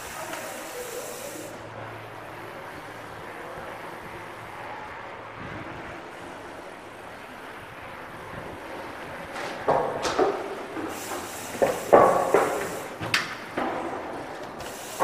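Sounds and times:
bike tyres rolling on dirt: 0:00.0 - 0:15.0
bike rattle: 0:07.2 - 0:15.0.

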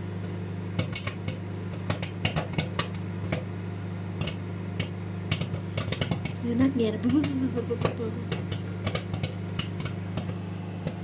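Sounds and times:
microwave oven humming: 0:00.0 - 0:11.0
popcorn popping: 0:00.0 - 0:11.0.

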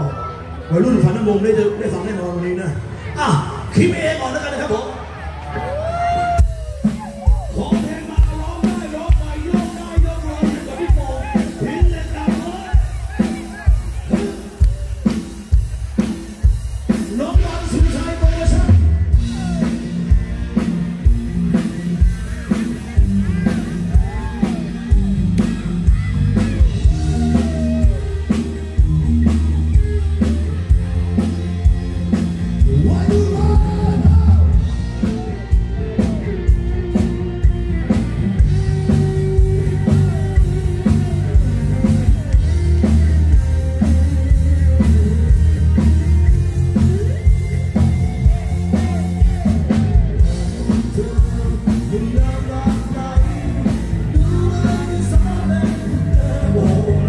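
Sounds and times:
live rock band playing: 0:00.0 - 0:57.0
man singing: 0:17.2 - 0:19.8, 0:32.6 - 0:35.4, 0:48.7 - 0:57.0.

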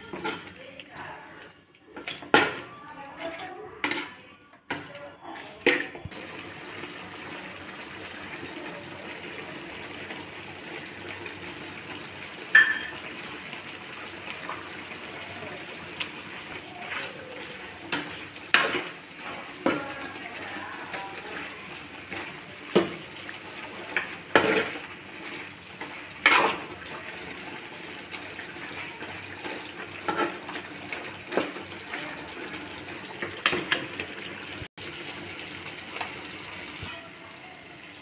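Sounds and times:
frying sizzle: 0:06.1 - 0:38.0
metal ladle clanking and scraping: 0:25.8 - 0:26.9.

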